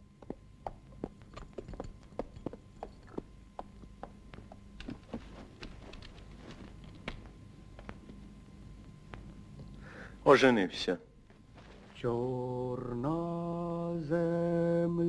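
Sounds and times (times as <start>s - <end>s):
horse hooves on grass: 0.2s - 8.1s.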